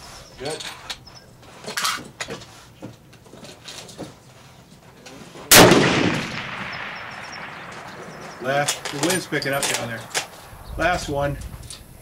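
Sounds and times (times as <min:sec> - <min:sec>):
rifle shot with echo: 0:05.5 - 0:10.4.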